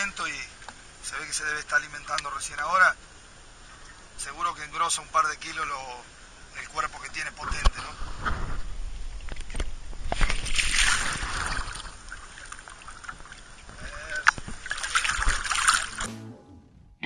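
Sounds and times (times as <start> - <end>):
water splashing from thrashing fish: 10.2 - 13.6, 14.3 - 16.1.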